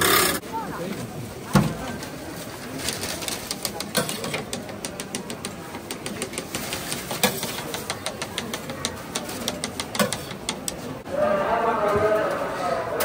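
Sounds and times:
cakes clacking onto metal tray: 3.2s - 10.9s.

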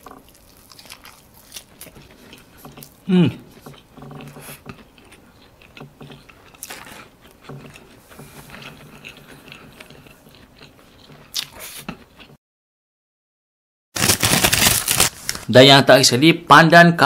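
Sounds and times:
close chewing crunches: 0.0s - 12.4s.

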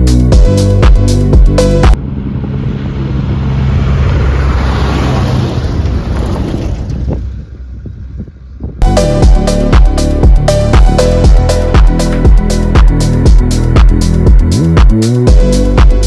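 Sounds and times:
background music: 0.0s - 2.0s, 8.8s - 16.0s
truck engine hum: 0.0s - 16.0s
tyres on gravel: 4.3s - 7.6s.

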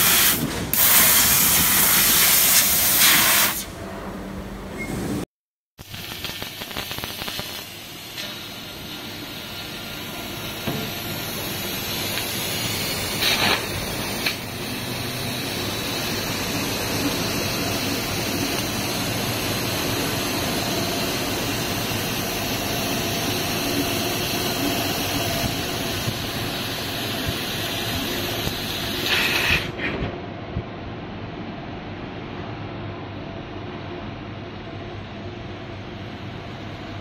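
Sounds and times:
laser cutter hissing through steel: 0.0s - 3.7s, 5.8s - 29.8s.

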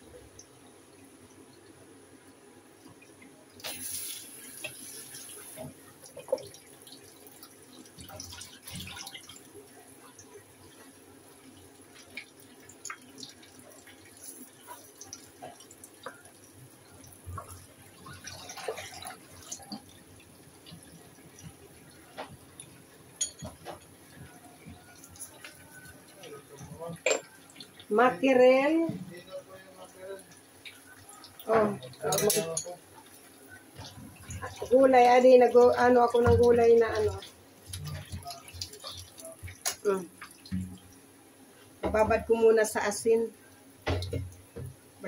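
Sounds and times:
running water: 0.0s - 45.0s
glass jars clinking: 23.2s - 23.6s, 27.0s - 27.4s.

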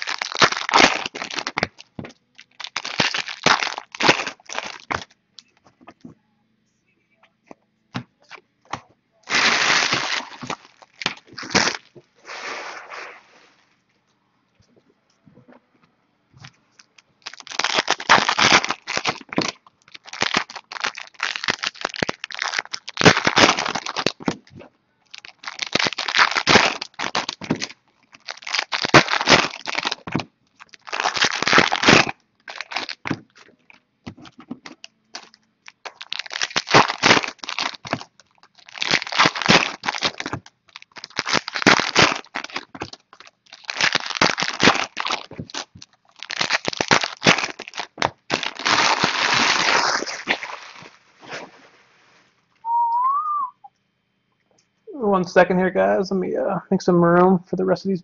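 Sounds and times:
foil wrappers tearing and crinkling: 0.0s - 5.1s, 9.3s - 13.2s, 17.2s - 24.4s, 25.1s - 51.6s.

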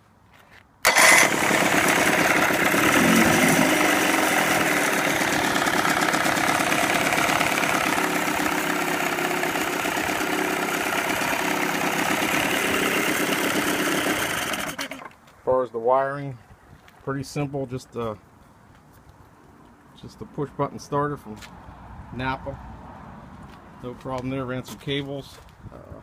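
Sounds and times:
electric starter cranking: 0.8s - 15.1s
outboard motor idling: 0.9s - 15.1s.

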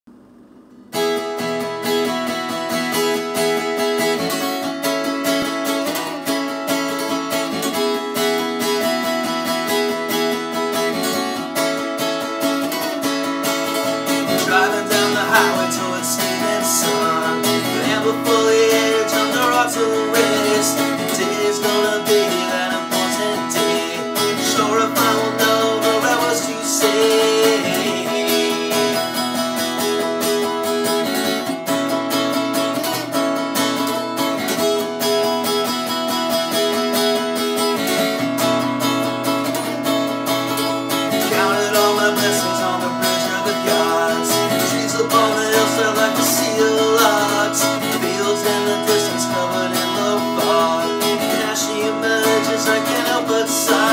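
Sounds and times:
acoustic guitar strumming: 0.1s - 53.9s
man singing: 13.6s - 30.0s, 41.1s - 53.9s.

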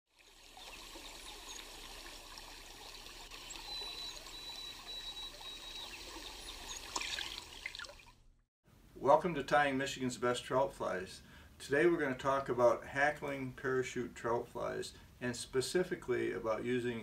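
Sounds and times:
stream water trickling: 0.1s - 8.4s
faint high chirps: 3.3s - 7.3s.

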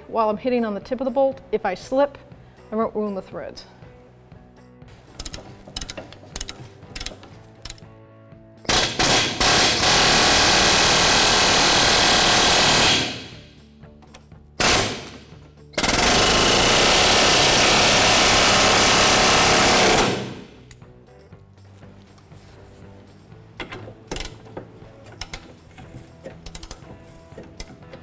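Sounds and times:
air chisel hammering on bolt: 8.7s - 13.4s.

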